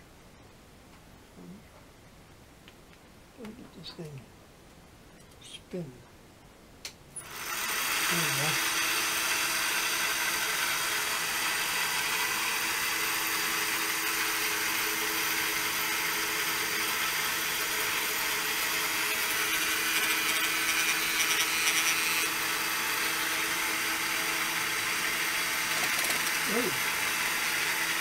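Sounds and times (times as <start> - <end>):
cutter scratching: 7.2 - 15.6, 16.2 - 28.0
small electric motor running: 7.2 - 28.0.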